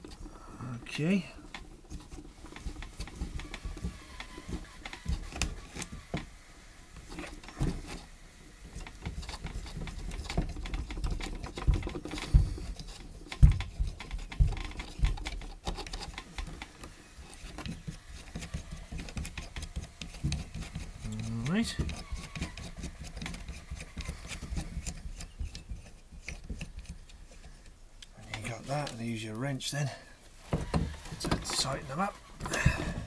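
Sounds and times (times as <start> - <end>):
small clicks and rubbing of nuts: 0.0 - 29.2, 31.0 - 32.7.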